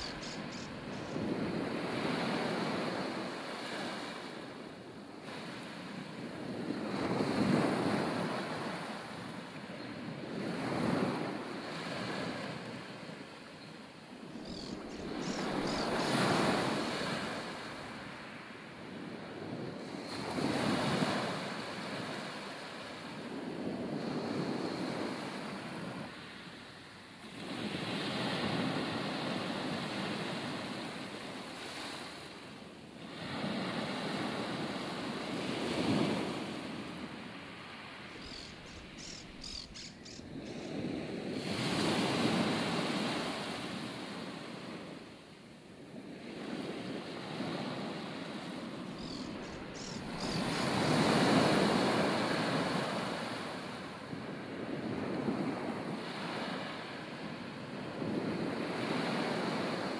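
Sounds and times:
wind on microphone: 0.0s - 4.1s, 14.1s - 22.3s, 33.1s - 45.0s, 45.8s - 59.9s
ocean waves breaking on shore: 0.0s - 59.9s.

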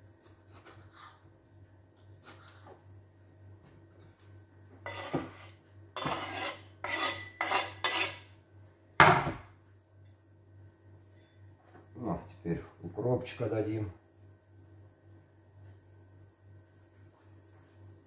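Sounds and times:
knife scraping cutting board: 0.2s - 1.3s, 4.8s - 8.3s.

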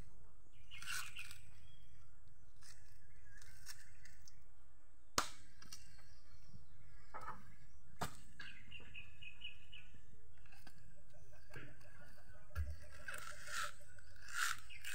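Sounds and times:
bird chirping: 0.0s - 4.5s, 5.8s - 14.9s
coconut husk cracking: 5.2s - 5.9s.

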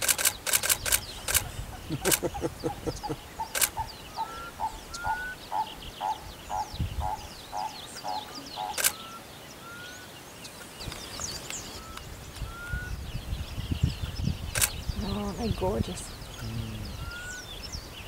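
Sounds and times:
camera shutter click: 0.0s - 2.2s, 3.6s - 3.8s, 8.7s - 9.1s, 14.6s - 14.8s
faint high bird chirping: 0.0s - 18.0s.

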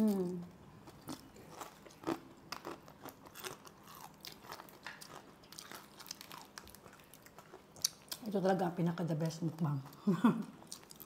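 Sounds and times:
person chewing crunchy food: 0.0s - 8.2s, 10.0s - 11.0s.

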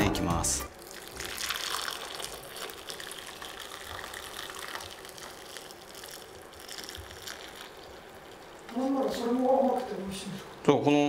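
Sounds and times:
syrup pouring and splashing into bowl: 0.8s - 8.7s.

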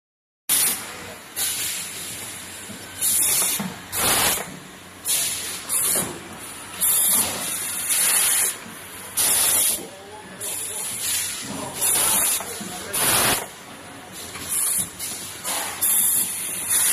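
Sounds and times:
pneumatic air hiss bursts: 0.5s - 0.8s, 3.0s - 6.1s, 6.8s - 8.6s, 9.2s - 9.8s, 10.5s - 13.5s, 14.5s - 16.9s.

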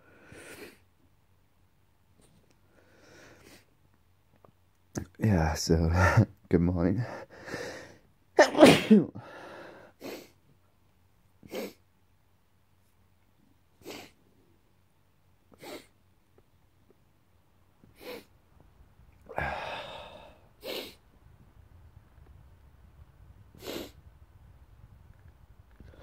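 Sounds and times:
man sneezing loudly: 8.4s - 9.2s, 13.8s - 14.2s, 15.6s - 15.9s
sharp nose sniffs: 13.8s - 14.2s, 15.6s - 15.9s, 17.9s - 18.3s, 20.6s - 21.0s, 23.6s - 24.0s.

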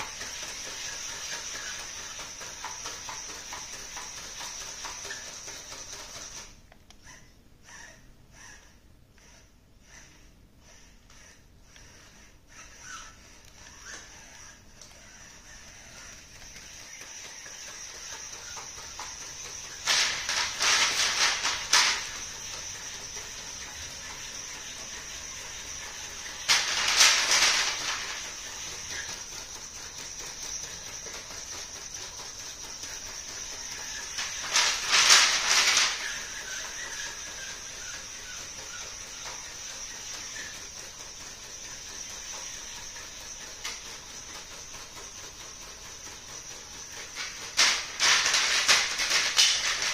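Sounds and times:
high-pitched servo whine: 0.0s - 49.9s
robot legs clattering and scraping: 13.6s - 40.6s, 46.8s - 49.9s.

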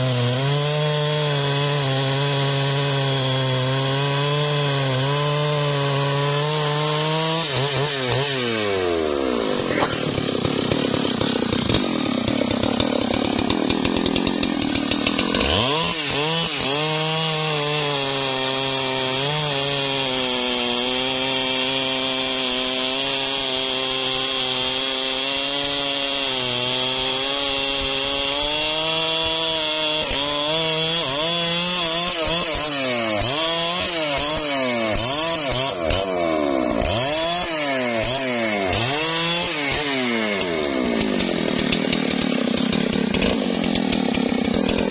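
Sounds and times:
chainsaw cutting through trunk: 0.0s - 44.9s.

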